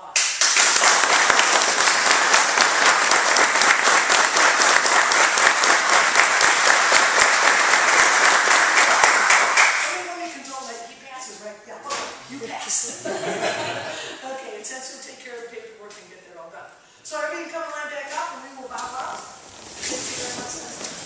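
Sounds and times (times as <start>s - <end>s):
group applauding: 0.0s - 10.0s.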